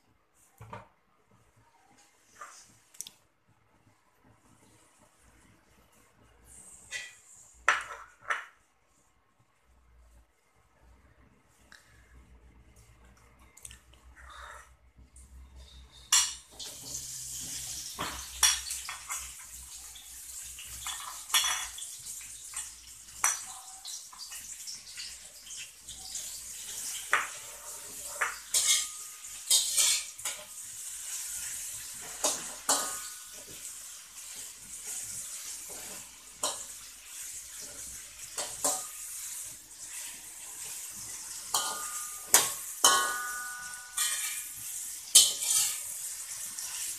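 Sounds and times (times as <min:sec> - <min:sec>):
aromatics sizzling in hot oil: 0:15.3 - 0:46.9
metal spatula scraping a wok: 0:26.2 - 0:46.9.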